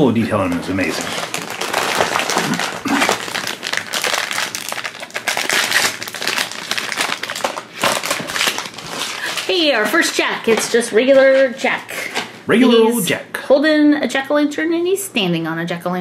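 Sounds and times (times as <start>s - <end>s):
plastic wrapper crinkling: 0.3s - 10.8s.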